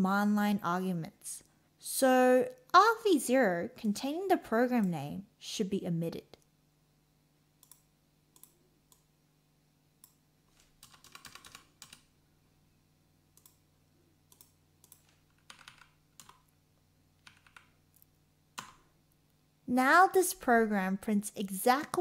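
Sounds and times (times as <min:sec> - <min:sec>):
faint keyboard typing: 0:07.6 - 0:09.1, 0:10.0 - 0:12.2, 0:13.3 - 0:16.6, 0:17.2 - 0:19.2, 0:21.6 - 0:22.0.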